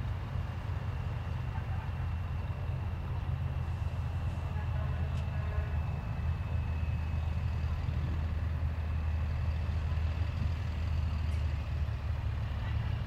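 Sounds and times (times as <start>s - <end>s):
truck engine rumbling: 0.0s - 13.0s.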